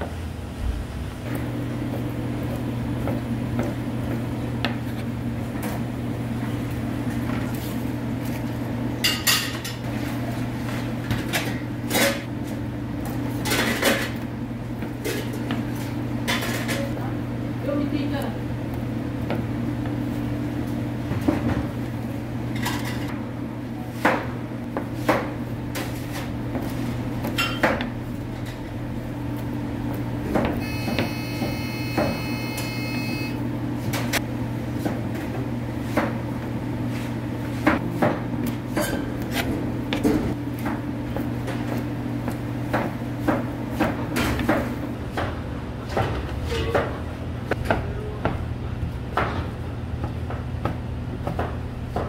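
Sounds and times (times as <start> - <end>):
low machine hum: 0.0 - 52.0
high electronic tone: 30.6 - 33.4.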